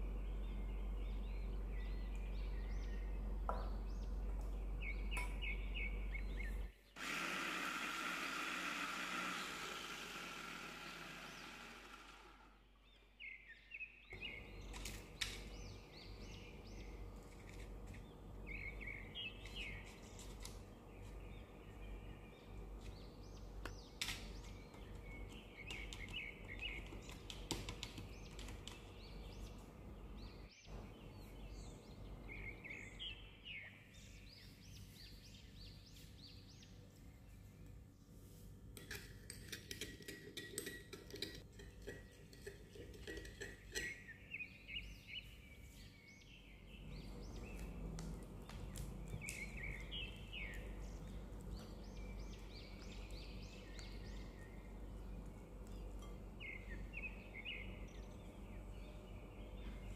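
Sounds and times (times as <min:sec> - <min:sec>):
low steady hum: 0:00.0 - 0:27.3, 0:28.0 - 0:39.5, 0:41.0 - 0:59.9
birds chirping: 0:00.0 - 0:38.2, 0:39.7 - 0:59.9
food chopper motor: 0:07.0 - 0:12.7.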